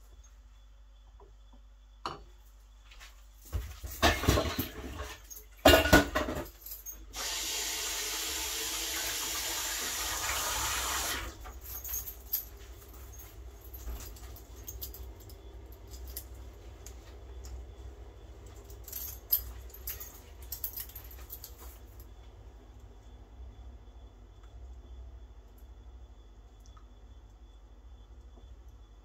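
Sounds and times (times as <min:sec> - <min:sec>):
light metal clinking: 0:03.4 - 0:07.1, 0:11.4 - 0:17.7, 0:18.4 - 0:22.3
metal pans clanking: 0:04.0 - 0:06.5
kitchen tap running: 0:07.2 - 0:11.4.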